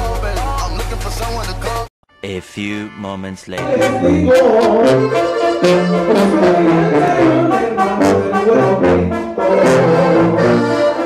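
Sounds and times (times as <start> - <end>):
tuba bass line: 2.2 - 11.0
brass horns: 3.6 - 11.0.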